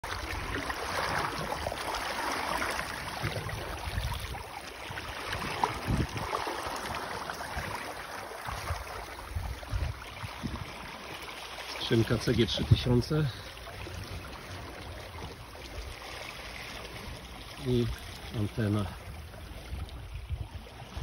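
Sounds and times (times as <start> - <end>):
water rushing and splashing: 0.0 - 21.0
wind gusts on microphone: 2.9 - 10.9, 19.7 - 21.0.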